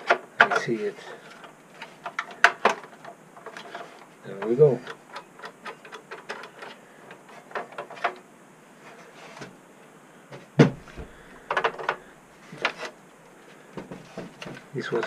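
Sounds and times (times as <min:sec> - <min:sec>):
heavy thump on desk: 0:10.6 - 0:11.2.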